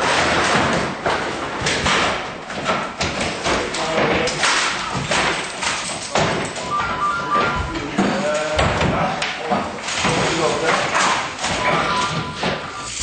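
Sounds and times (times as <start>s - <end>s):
clattering noise: 0.0s - 13.0s.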